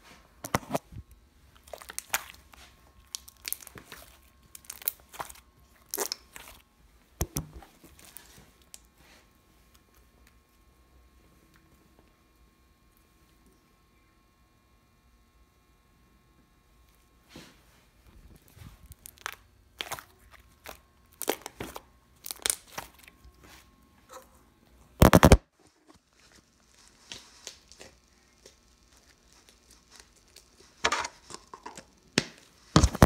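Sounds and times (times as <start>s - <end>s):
slime squishing and popping: 1.6s - 6.6s, 18.9s - 23.1s, 25.0s - 25.4s, 32.2s - 33.0s.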